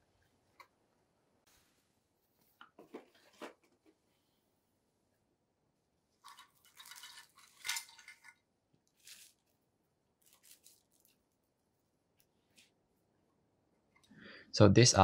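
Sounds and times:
plastic wrapping rustling: 8.9s - 9.6s, 10.2s - 11.8s.

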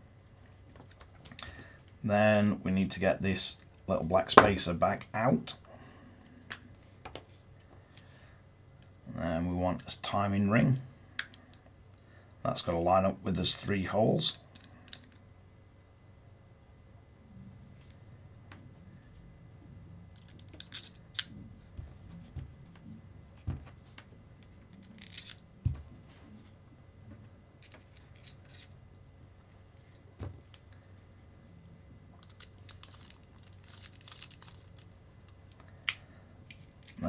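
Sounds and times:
small metal parts clinking: 20.2s - 21.3s, 24.7s - 25.5s, 27.6s - 28.8s, 32.2s - 37.0s.

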